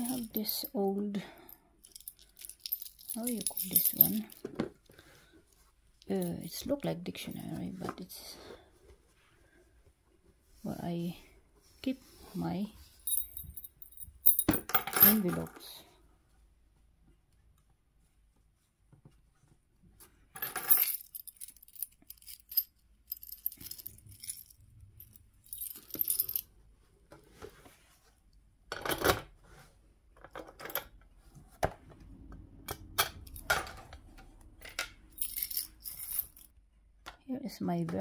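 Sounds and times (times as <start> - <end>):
metallic clicks and clinks: 0.0 - 0.8, 1.4 - 4.4, 13.1 - 15.4, 20.4 - 26.4, 34.6 - 36.5.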